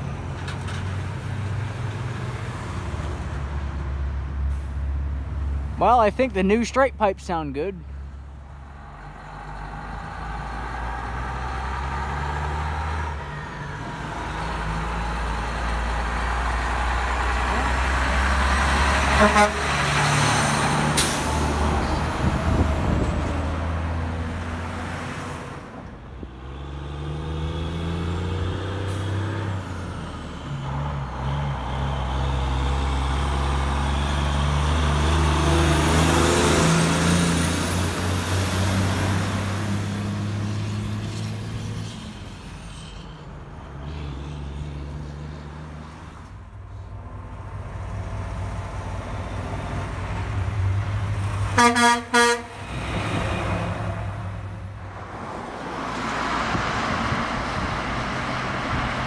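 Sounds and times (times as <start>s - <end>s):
diesel truck engines passing: 0.0s - 59.0s
short truck horn toots: 19.1s - 19.8s, 51.6s - 52.6s.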